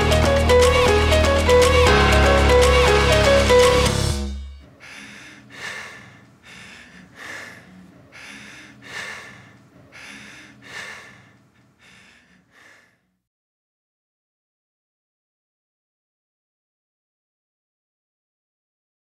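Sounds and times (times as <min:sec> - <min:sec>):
man breathing hard: 0:04.7 - 0:13.2.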